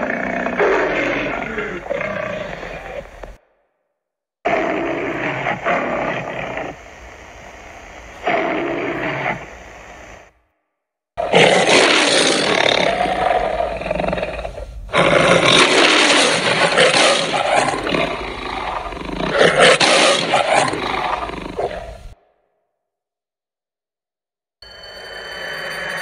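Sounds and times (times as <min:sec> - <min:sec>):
monster roar: 0:00.0 - 0:03.4, 0:04.5 - 0:06.9, 0:11.2 - 0:22.2.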